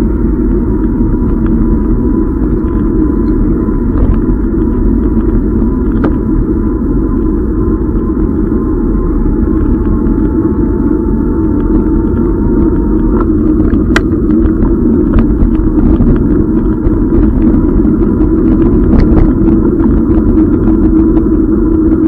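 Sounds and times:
wind and road rumble: 0:00.0 - 0:22.0
small ticks and rattles: 0:00.4 - 0:06.5.

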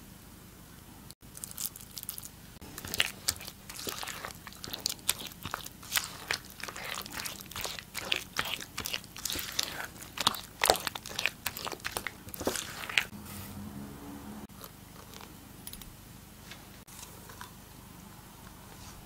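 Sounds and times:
spatula stirring wet mixture: 0:02.6 - 0:13.1.

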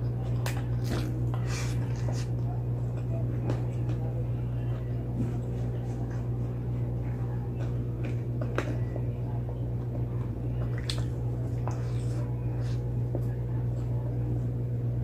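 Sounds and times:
person chewing food: 0:00.0 - 0:03.6, 0:09.8 - 0:13.2
steady low hum: 0:00.0 - 0:15.0.

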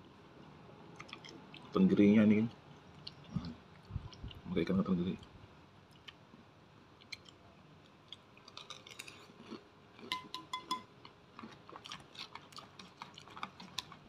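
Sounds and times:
close-up chewing: 0:07.0 - 0:10.3, 0:11.3 - 0:14.0.

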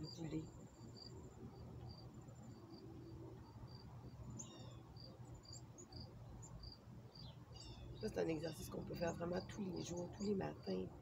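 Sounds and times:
cricket chirping: 0:00.0 - 0:07.8.

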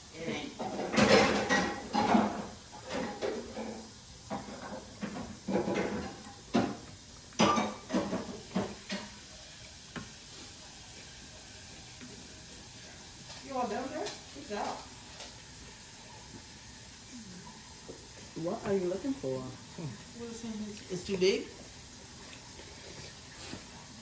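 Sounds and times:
cutlery and dishes clinking: 0:00.6 - 0:09.3.

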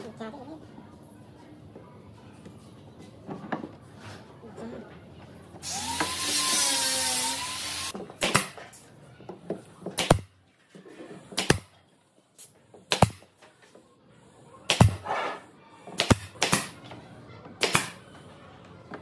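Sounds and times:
power tool whining: 0:05.6 - 0:07.9.

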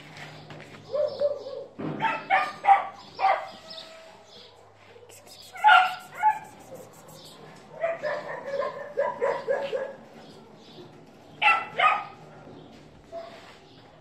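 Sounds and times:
dog barking: 0:00.9 - 0:03.8, 0:04.4 - 0:10.1, 0:11.4 - 0:12.2.

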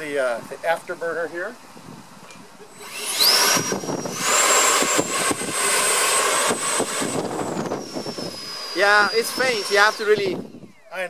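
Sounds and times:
electric ducted fan whine: 0:00.0 - 0:11.0
loud rush of air: 0:02.8 - 0:10.6.

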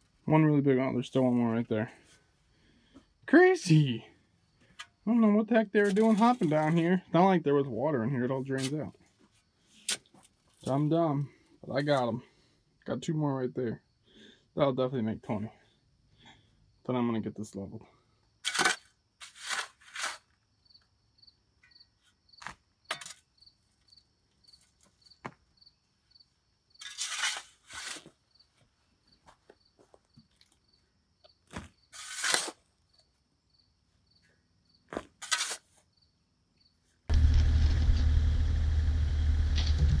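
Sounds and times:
shovel scraping sandy soil: 0:05.8 - 0:06.8, 0:08.4 - 0:08.9, 0:18.4 - 0:20.4, 0:26.8 - 0:28.2, 0:31.9 - 0:32.7, 0:35.0 - 0:35.8.

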